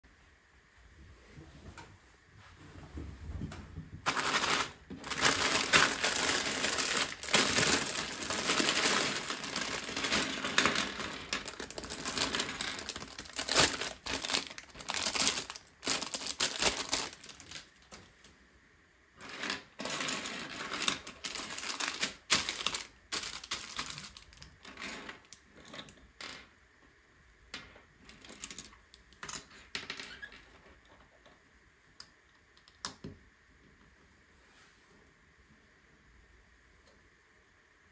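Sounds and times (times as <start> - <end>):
plastic bag rustling: 4.0 - 18.1, 19.2 - 25.2
plastic pieces clattering and clicking: 4.1 - 18.1, 19.2 - 26.0.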